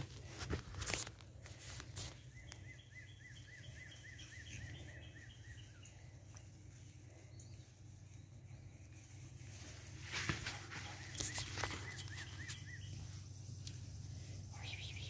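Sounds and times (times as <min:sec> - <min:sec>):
bird singing: 0:02.0 - 0:09.0, 0:10.8 - 0:15.0
short rustles or knocks: 0:09.8 - 0:11.9.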